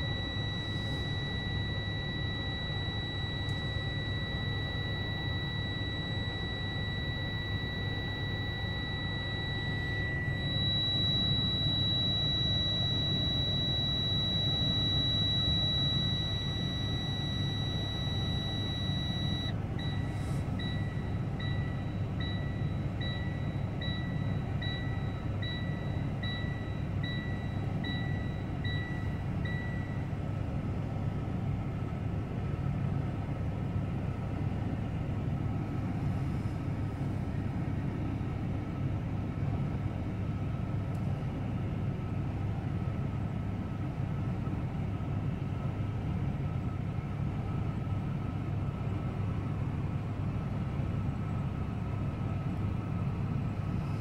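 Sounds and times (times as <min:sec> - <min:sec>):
high electronic warning beep: 0:00.0 - 0:30.1
low mechanical rumble of heavy vehicles: 0:00.0 - 0:54.0.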